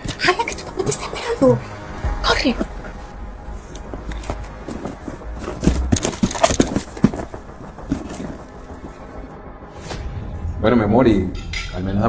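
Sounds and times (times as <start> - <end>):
irregular knocks and thuds: 3.9 - 9.2.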